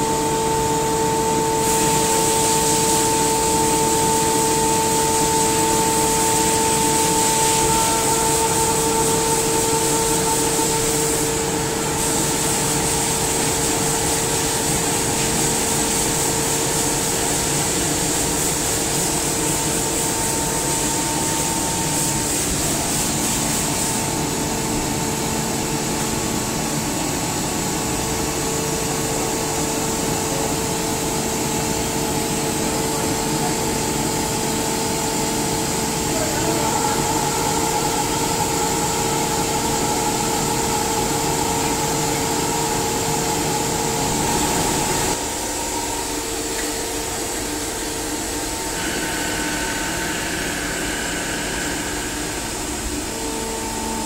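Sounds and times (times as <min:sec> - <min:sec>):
air compressor running: 0:00.0 - 0:54.0.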